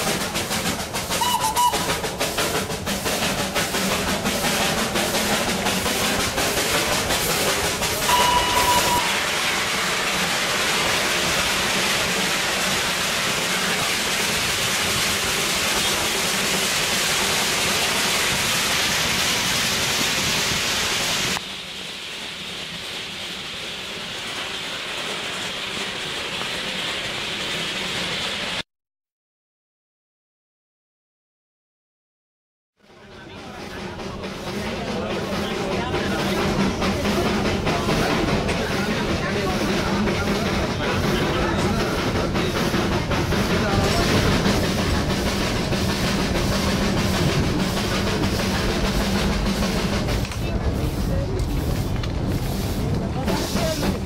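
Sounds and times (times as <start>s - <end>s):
rail clatter: 0.0s - 28.6s, 32.9s - 54.0s
train horn toots: 1.2s - 1.9s, 8.1s - 9.2s
steady rushing noise: 33.2s - 54.0s.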